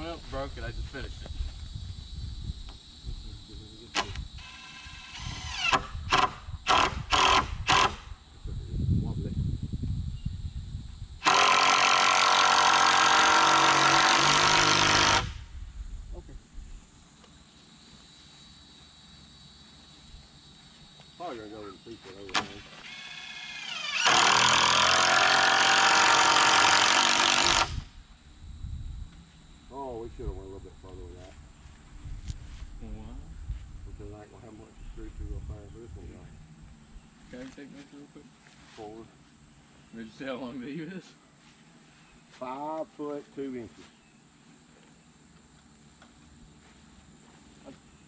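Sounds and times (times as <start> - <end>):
power drill driving screw: 4.0 - 8.1, 11.2 - 15.4, 22.3 - 27.8.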